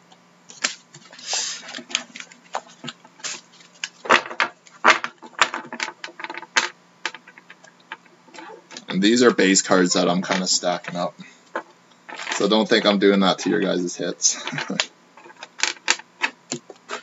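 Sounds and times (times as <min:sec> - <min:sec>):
cards brushing slide: 0:00.6 - 0:02.0.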